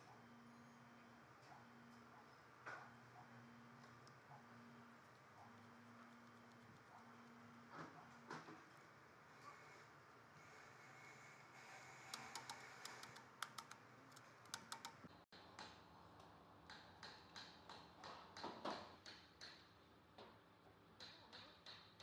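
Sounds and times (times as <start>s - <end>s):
light clicks of hands working wire: 12.1s - 15.0s.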